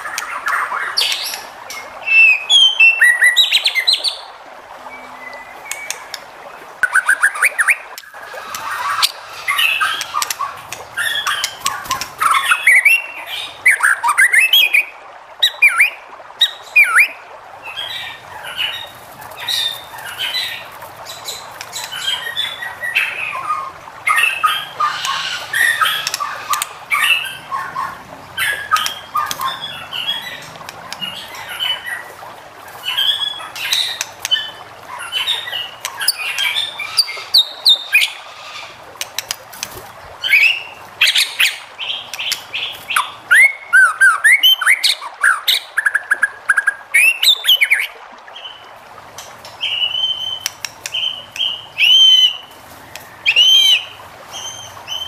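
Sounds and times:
bird singing varied song: 0.0 - 4.3, 4.9 - 32.2.

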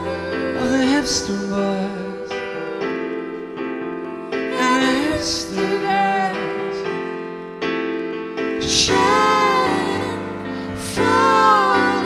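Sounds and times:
man and woman singing: 0.0 - 2.4, 4.5 - 6.8, 8.6 - 12.0
keyboard chords: 0.0 - 12.0.

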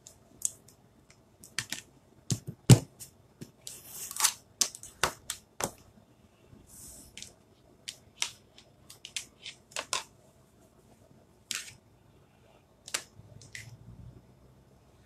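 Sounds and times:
plastic items clicking on tabletop: 1.4 - 2.8.

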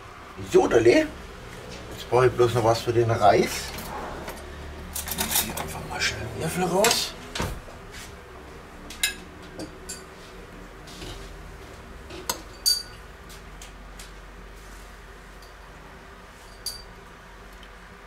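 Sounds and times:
spoon clinking on steel pot: 12.3 - 13.0.

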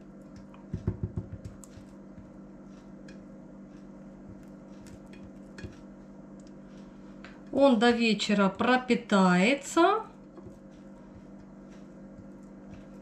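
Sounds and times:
steady low hum: 0.0 - 13.0
spoon scraping and tapping a plate: 4.9 - 5.8.

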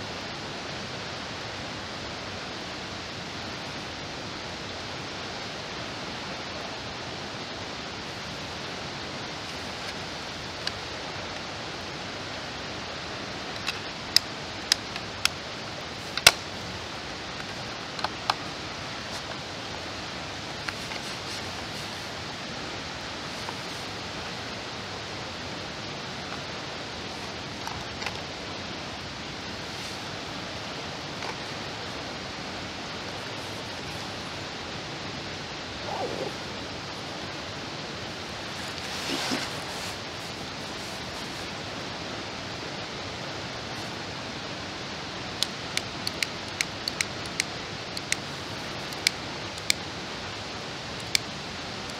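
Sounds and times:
sharp clicks: 45.4 - 48.3.

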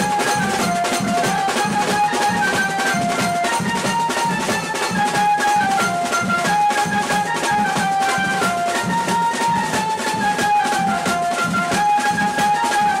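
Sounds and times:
fast drum beat: 0.0 - 13.0
loud band music: 0.0 - 13.0.

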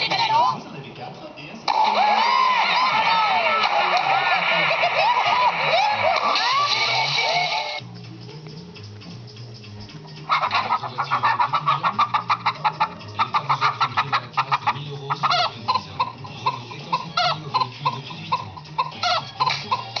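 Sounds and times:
hen clucking: 1.7 - 7.8, 10.2 - 20.0
squawking calls: 1.7 - 7.8, 10.2 - 20.0.

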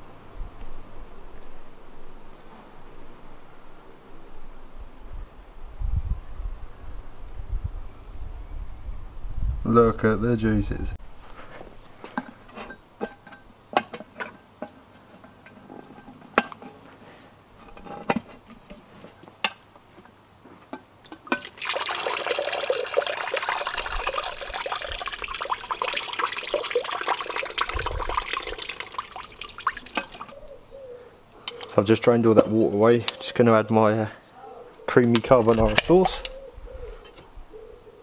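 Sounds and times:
metal pot lid clinking: 21.1 - 21.6, 29.8 - 30.4
water pouring through strainer: 21.3 - 30.4.

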